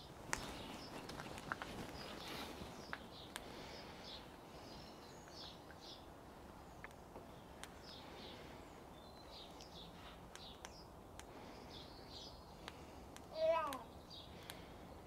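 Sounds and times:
faint birdsong: 0.0s - 15.0s
sharp clicks: 9.6s - 11.4s, 12.6s - 14.7s.

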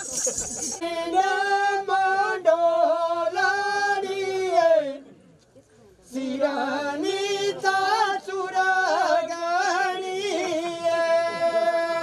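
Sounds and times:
person singing unaccompanied: 0.0s - 5.0s, 6.1s - 12.0s.

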